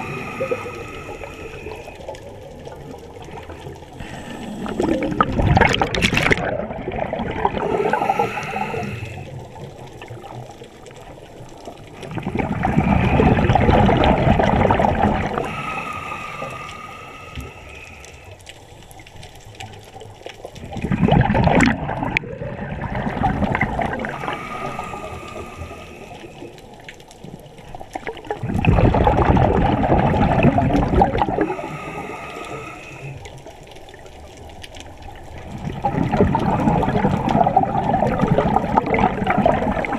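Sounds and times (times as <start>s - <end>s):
inhalation through a regulator: 0.0s - 2.0s, 4.0s - 5.4s, 7.6s - 9.4s, 15.2s - 18.4s, 23.9s - 26.5s, 31.3s - 33.4s
bubbling underwater exhalations: 0.0s - 10.5s, 11.8s - 17.6s, 20.6s - 26.5s, 27.9s - 33.0s, 35.3s - 39.9s.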